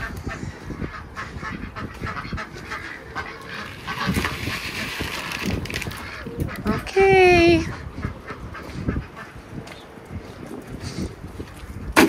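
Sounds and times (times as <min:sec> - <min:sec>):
ducks quacking and honking: 0:00.0 - 0:10.0
dry feed rattling into bowl: 0:03.7 - 0:06.0.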